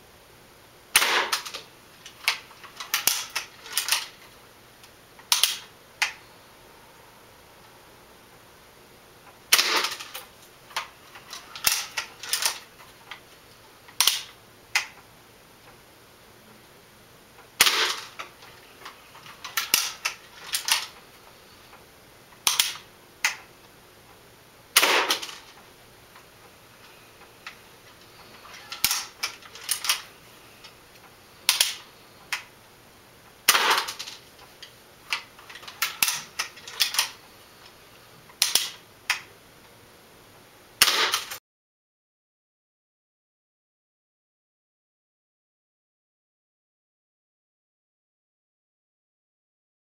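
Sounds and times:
bb gun cocking and firing: 0:00.9 - 0:01.6, 0:02.2 - 0:04.1, 0:05.3 - 0:05.7, 0:09.5 - 0:10.2, 0:11.6 - 0:12.6, 0:14.0 - 0:14.9, 0:17.6 - 0:18.2, 0:19.4 - 0:20.9, 0:22.4 - 0:23.4, 0:24.8 - 0:25.4, 0:28.7 - 0:30.1, 0:31.5 - 0:31.8, 0:33.5 - 0:34.1, 0:35.5 - 0:37.2, 0:38.4 - 0:38.8, 0:40.8 - 0:41.4.

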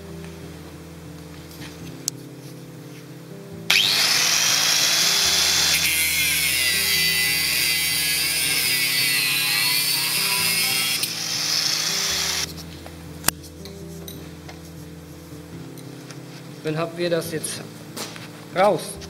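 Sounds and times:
angle grinder cutting steel rod: 0:03.7 - 0:12.5.

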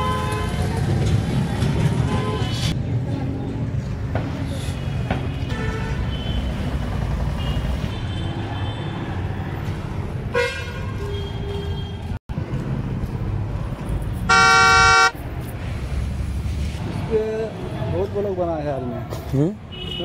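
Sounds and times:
traffic rumble: 0:00.0 - 0:20.0
vehicle horn blast: 0:14.3 - 0:15.2.

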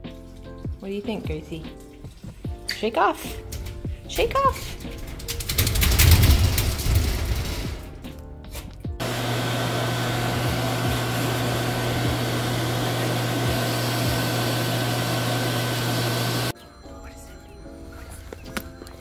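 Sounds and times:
pet dryer blowing air: 0:09.0 - 0:16.5.

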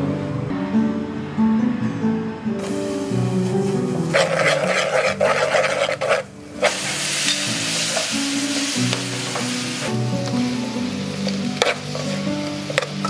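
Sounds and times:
guitar music: 0:00.0 - 0:13.0
meat sizzling in a pot: 0:02.6 - 0:13.0
sauce sizzling in hot oil: 0:02.6 - 0:13.0
spoon scraping and stirring pot: 0:04.1 - 0:09.6, 0:11.2 - 0:13.0.

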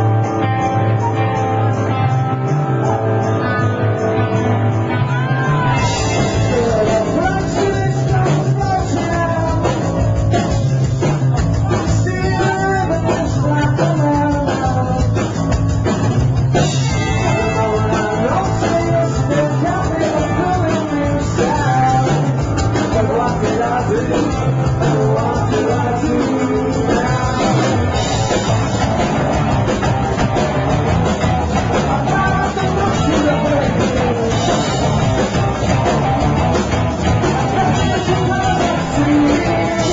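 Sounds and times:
bass: 0:00.0 - 0:39.9
drums: 0:00.0 - 0:39.9
electric guitar: 0:00.0 - 0:39.9
person singing: 0:04.9 - 0:10.4, 0:11.4 - 0:15.4, 0:16.8 - 0:28.5, 0:31.6 - 0:35.5, 0:37.0 - 0:39.9.

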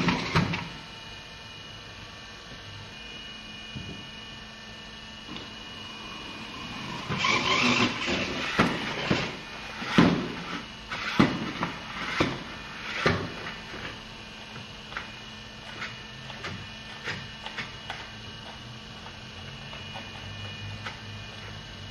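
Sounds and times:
remote-control car whirring: 0:06.0 - 0:11.2.

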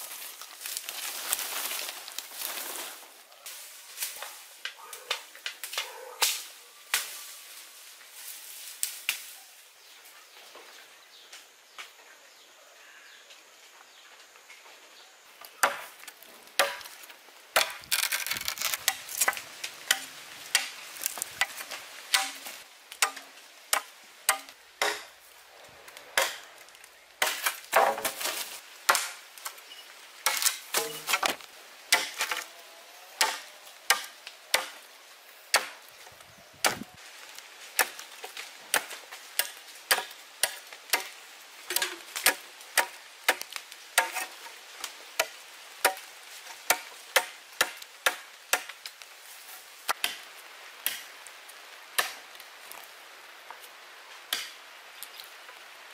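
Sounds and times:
machete chopping bamboo: 0:15.6 - 0:15.9, 0:16.6 - 0:16.9, 0:17.6 - 0:25.1, 0:26.2 - 0:26.4, 0:27.2 - 0:29.2, 0:30.2 - 0:32.4, 0:33.2 - 0:34.8, 0:35.5 - 0:35.8, 0:36.6 - 0:36.9, 0:37.8 - 0:44.4, 0:45.2 - 0:46.1, 0:46.7 - 0:48.8.

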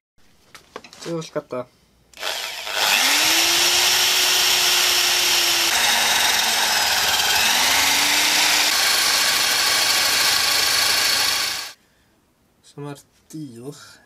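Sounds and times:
power tool motor hum: 0:02.2 - 0:11.8.

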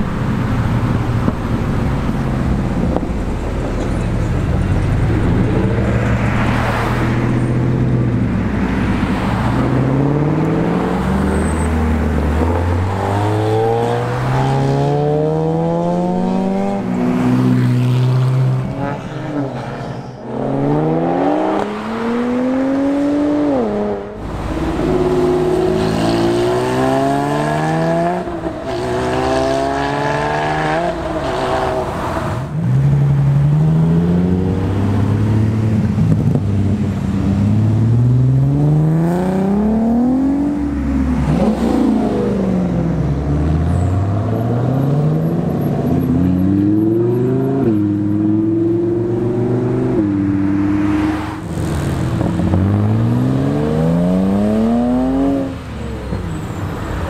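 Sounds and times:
cars accelerating through gears: 0:08.9 - 0:32.5, 0:37.5 - 0:55.7.

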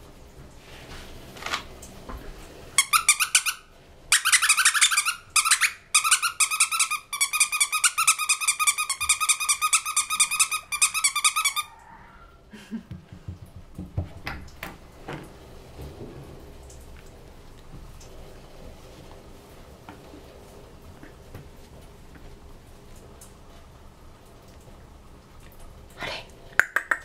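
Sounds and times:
dog toy squeaking: 0:02.8 - 0:11.7.

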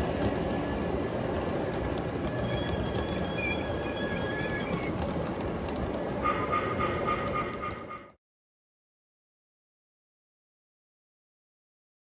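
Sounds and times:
model train wheels rumbling on rail: 0:00.0 - 0:08.2
thin high squeal: 0:02.4 - 0:04.9.

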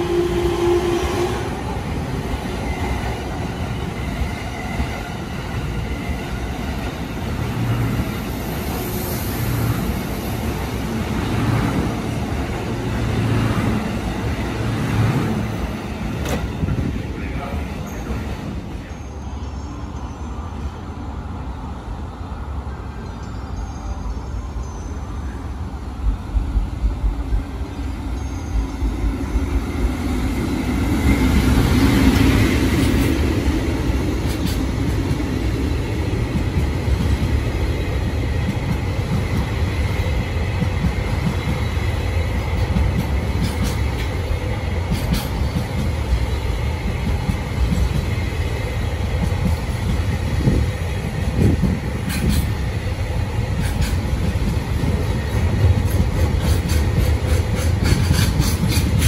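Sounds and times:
electric locomotive passing: 0:00.0 - 0:59.0
wheels clicking over rail joints: 0:51.2 - 0:52.6, 0:53.6 - 0:59.0.

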